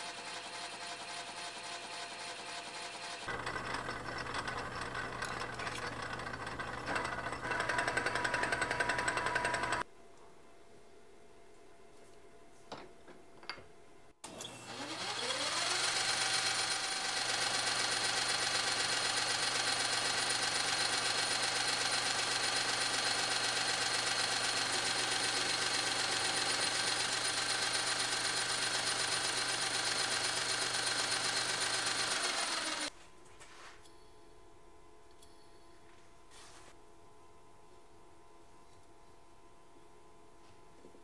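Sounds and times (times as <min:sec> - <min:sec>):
metal lathe running: 0:00.0 - 0:09.8, 0:14.7 - 0:32.9.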